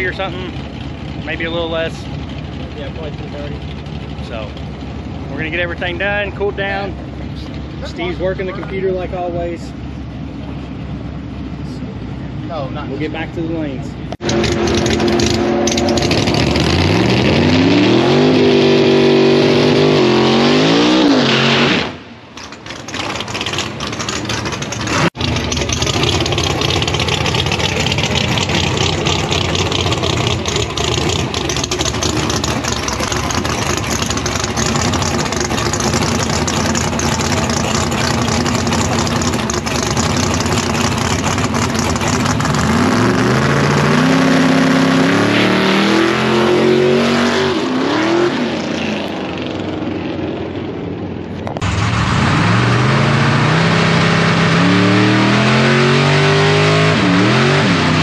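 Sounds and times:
racing car engine revving: 14.0s - 50.6s, 51.5s - 58.0s.

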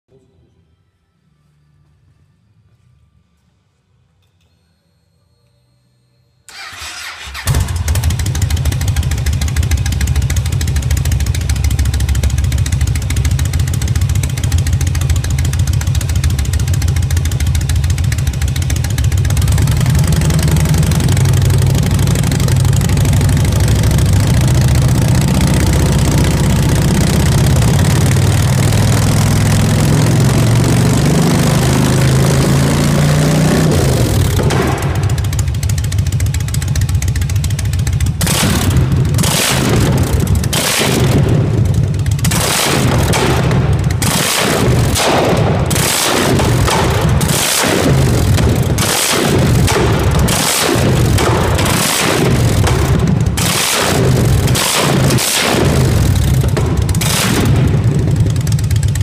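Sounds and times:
motorcycle starter cranking: 6.5s - 28.7s
motorcycle engine idling: 6.6s - 32.6s, 33.3s - 42.4s, 55.8s - 59.0s.

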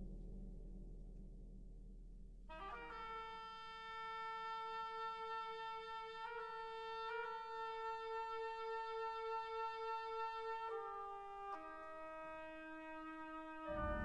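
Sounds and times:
orchestral sustained note: 13.6s - 14.0s.

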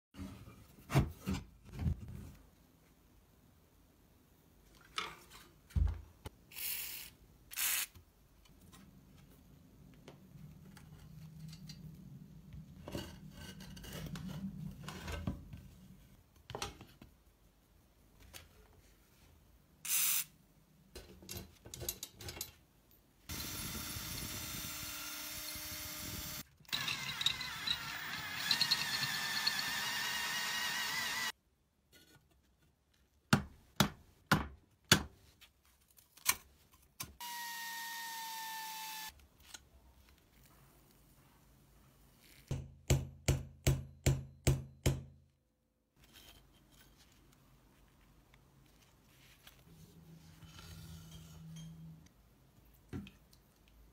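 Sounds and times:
power drill drilling: 23.3s - 31.3s, 37.2s - 39.1s.

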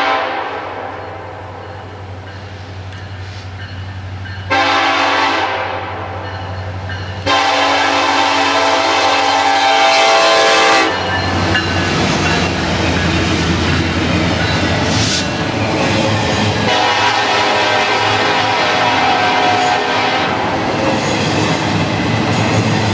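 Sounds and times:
locomotive air horn blasts: 0.0s - 1.0s, 4.5s - 6.1s, 7.2s - 11.1s, 16.6s - 20.5s
wheels on rails: 10.9s - 17.5s.

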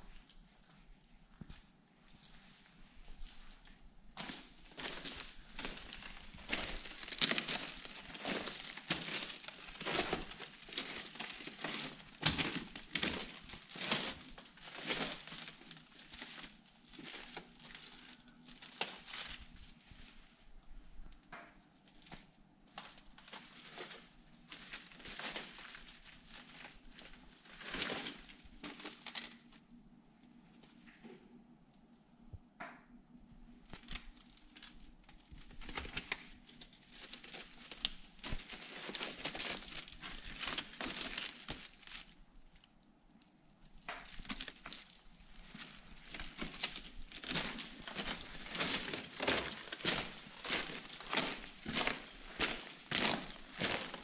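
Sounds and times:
footsteps on gravel: 47.2s - 54.0s.

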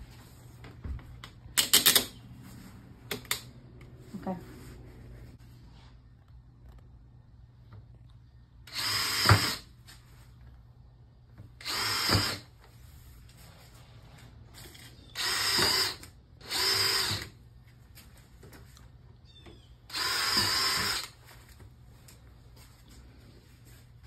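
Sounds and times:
cordless drill boring: 8.7s - 9.7s, 11.6s - 12.5s, 14.7s - 17.4s, 19.9s - 21.2s.

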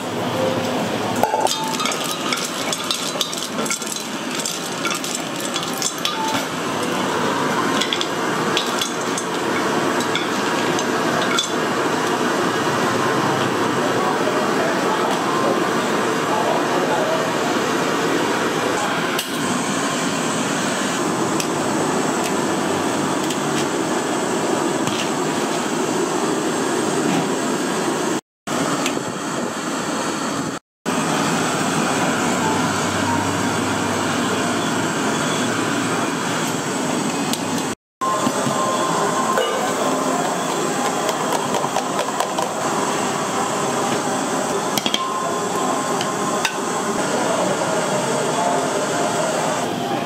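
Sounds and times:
busy kitchen roar: 0.0s - 50.0s
metal tongs clinking on pans: 1.2s - 7.0s, 7.7s - 11.6s.

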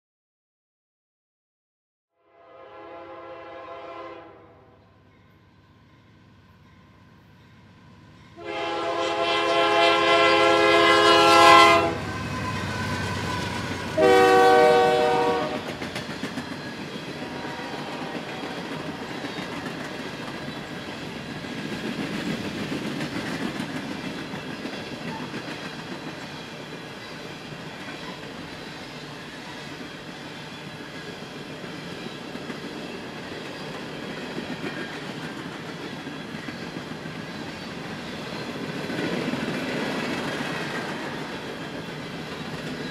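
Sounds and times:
locomotive air horn: 2.2s - 4.8s, 8.4s - 12.7s, 13.3s - 15.7s, 17.2s - 19.0s
train rolling past: 2.6s - 42.9s
wheels clicking over rail joints: 15.6s - 17.2s.

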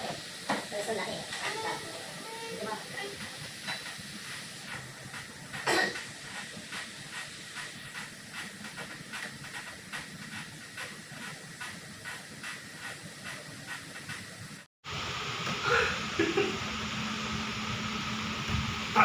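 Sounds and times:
soft rhythmic pedal ticks: 4.7s - 14.6s
cross-trainer hissing: 15.6s - 16.1s.

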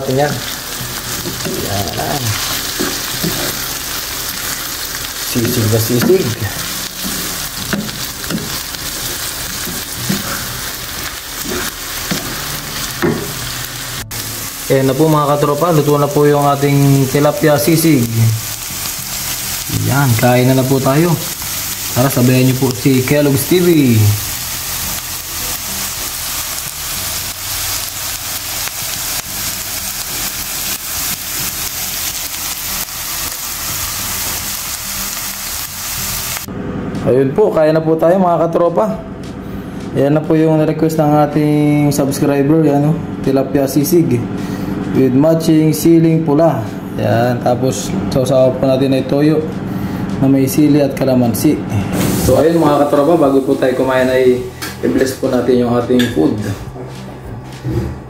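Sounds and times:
food sizzling in a pan: 0.0s - 36.5s, 51.9s - 55.0s.

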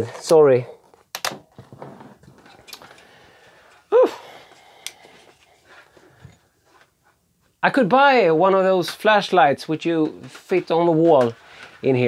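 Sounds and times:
handling and rummaging noises: 9.8s - 12.0s.

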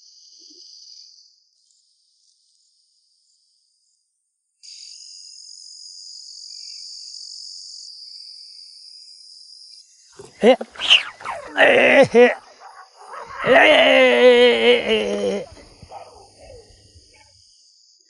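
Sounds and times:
insects chirring: 4.7s - 18.0s.

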